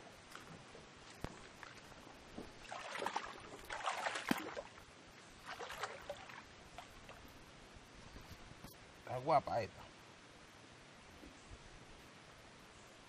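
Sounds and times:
mud and water sloshing: 0:00.3 - 0:07.3.

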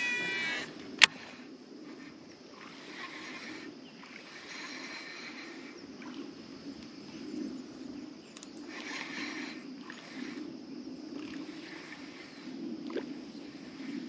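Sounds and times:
fishing reel spool whirring: 0:00.0 - 0:03.5.

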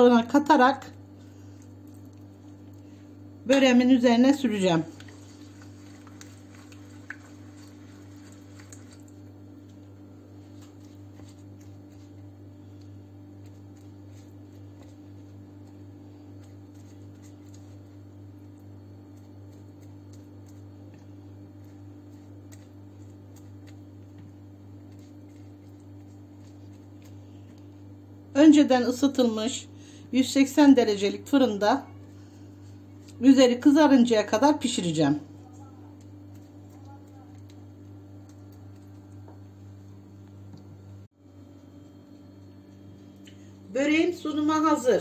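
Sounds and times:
steady low hum: 0:00.0 - 0:45.0
pastry brush squishing and dabbing: 0:04.3 - 0:28.4, 0:31.8 - 0:33.8.

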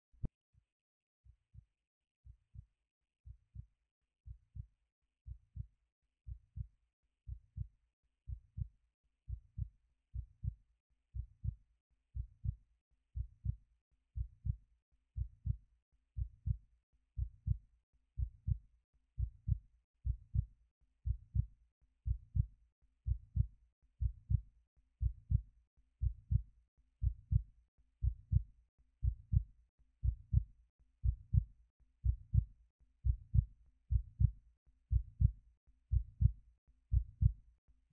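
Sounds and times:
heartbeat thumps: 0:09.3 - 0:10.6, 0:12.2 - 0:12.6, 0:13.2 - 0:13.6, 0:14.2 - 0:14.6, 0:15.2 - 0:15.6, 0:16.2 - 0:16.6, 0:17.2 - 0:17.6, 0:18.2 - 0:18.6, 0:19.2 - 0:20.5, 0:21.1 - 0:21.5, 0:22.1 - 0:22.5, 0:23.1 - 0:24.4, 0:25.0 - 0:25.4, 0:26.0 - 0:26.4, 0:27.0 - 0:27.4, 0:29.0 - 0:29.4, 0:30.0 - 0:30.4, 0:31.0 - 0:37.4.

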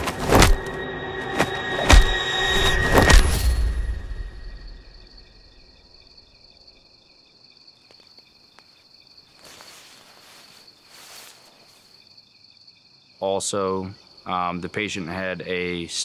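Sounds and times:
crickets chirping: 0:00.0 - 0:16.0.

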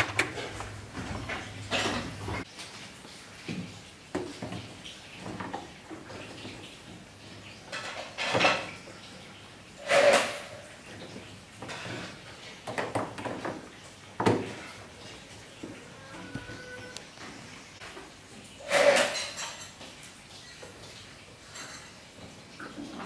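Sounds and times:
hard parts and tools clattering: 0:00.0 - 0:02.4, 0:18.6 - 0:19.8.

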